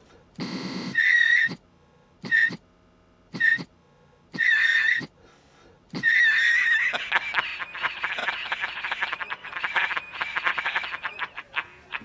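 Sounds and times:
frozen buzzing tone: 0.4s - 1.6s.

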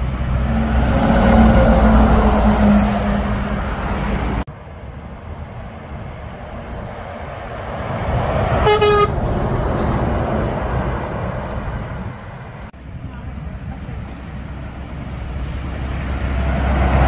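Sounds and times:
truck passing: 0.0s - 17.0s
truck horn toot: 8.6s - 9.3s.

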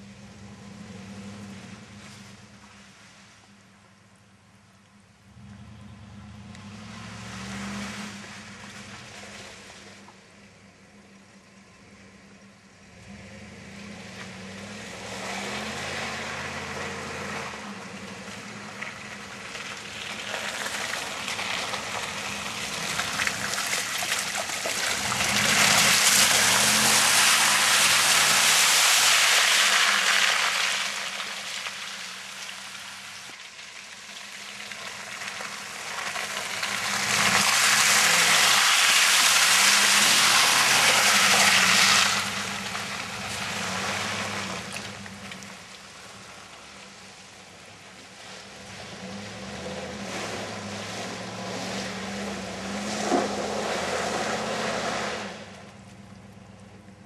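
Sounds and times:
truck engine revving: 12.9s - 19.4s, 20.0s - 31.2s, 35.6s - 45.6s, 48.6s - 55.7s
tyres churning through mud: 12.9s - 57.0s.

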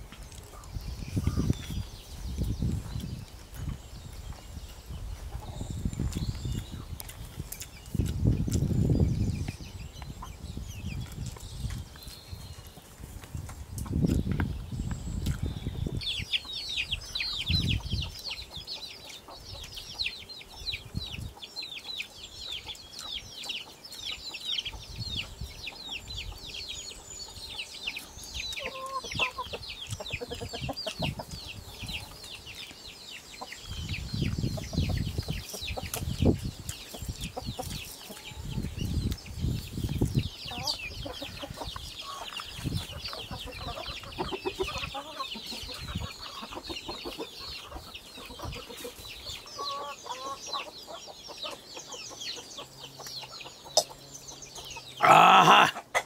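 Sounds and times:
birds chirping: 0.0s - 56.0s
chickens clucking: 0.0s - 56.0s.

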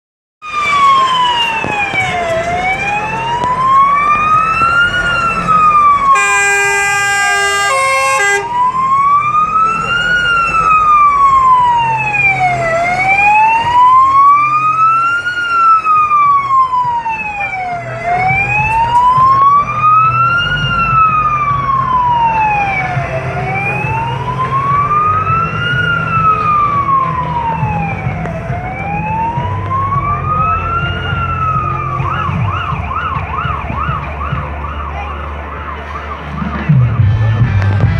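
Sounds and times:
diesel engine rumble: 0.4s - 37.9s
fire engine siren wailing: 0.4s - 37.9s
two-note horn blast: 6.1s - 8.6s.

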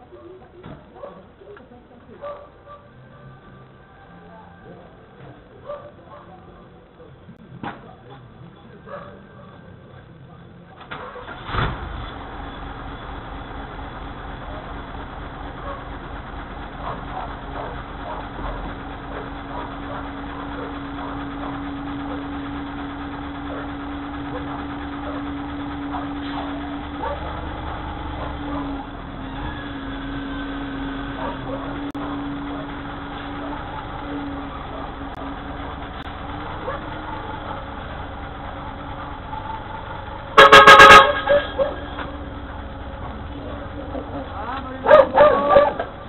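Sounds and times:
diesel engine idling: 0.0s - 46.0s
truck horn blast: 21.3s - 35.5s, 40.3s - 42.4s.

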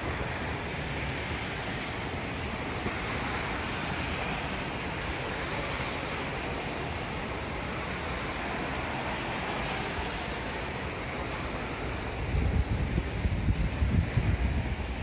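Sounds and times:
rushing wind: 0.0s - 15.0s.

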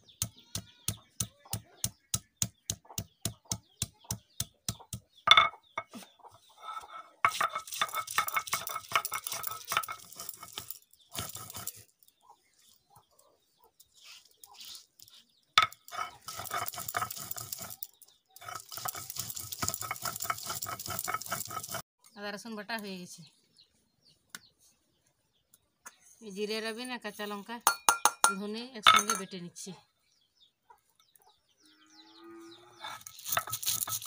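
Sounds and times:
stone knocking on wooden block: 4.7s - 6.0s, 27.7s - 29.2s
stone grinding with scraping strokes: 5.3s - 11.9s, 14.0s - 21.8s, 32.7s - 34.0s.

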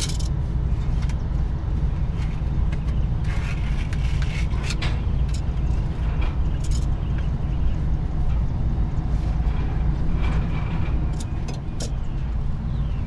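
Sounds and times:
clicks and rustles of air line: 0.0s - 13.0s
steady low rumble: 0.0s - 13.0s.

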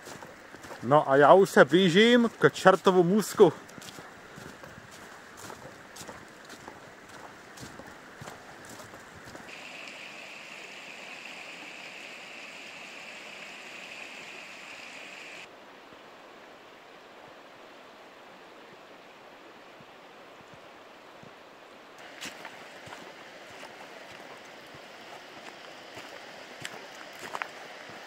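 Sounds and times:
river rushing water: 0.0s - 28.0s.

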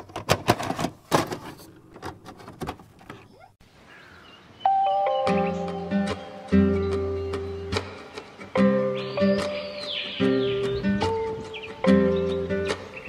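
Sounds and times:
tape player mechanism clunking: 0.0s - 3.3s
acoustic guitar music: 4.7s - 13.0s.

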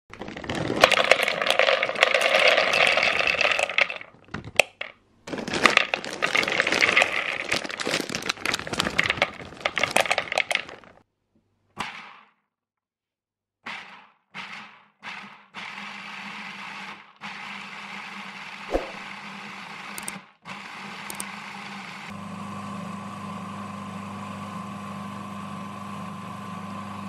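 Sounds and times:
nuts rattling in plastic bowl: 0.1s - 11.0s.

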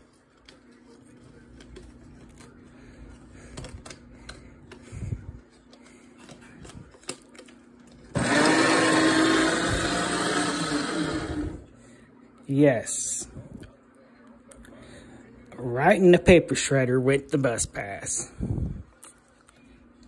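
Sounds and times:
paper shredder shredding: 8.1s - 11.7s.

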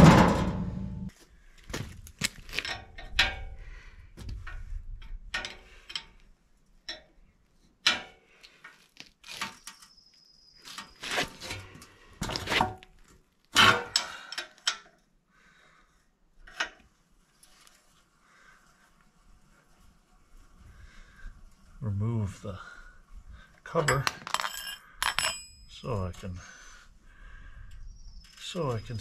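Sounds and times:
metal clanks and knocks: 0.0s - 1.1s, 23.8s - 25.7s.

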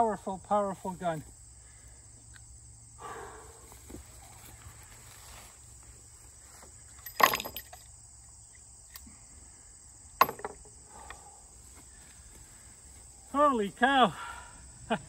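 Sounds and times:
insects chirring: 0.0s - 15.0s
revolver knocking on wooden table: 10.2s - 10.6s.

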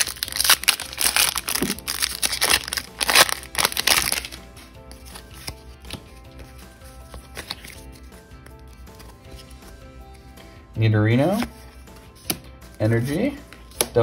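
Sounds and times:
foil wrapper crinkling and tearing: 0.0s - 4.4s
soft background music: 0.0s - 14.0s.

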